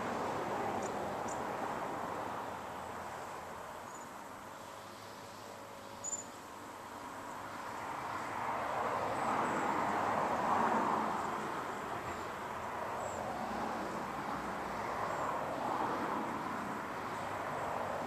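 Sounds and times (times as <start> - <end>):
vehicle passing with rushing noise: 0.0 - 3.6, 7.1 - 18.0
faint high chirps: 6.0 - 6.3.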